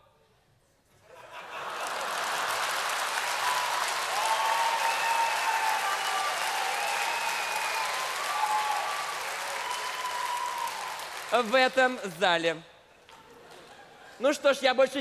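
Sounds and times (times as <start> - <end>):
studio audience applauding: 1.3 - 12.3.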